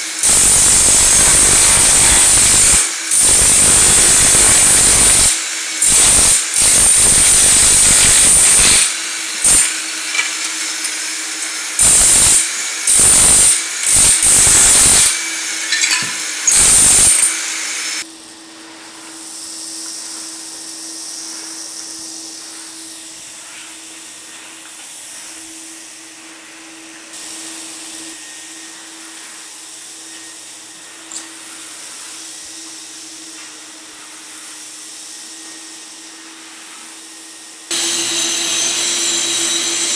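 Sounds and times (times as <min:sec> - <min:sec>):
vacuum humming: 0:00.0 - 0:39.9
chipping hammer breaking tile: 0:00.2 - 0:17.4.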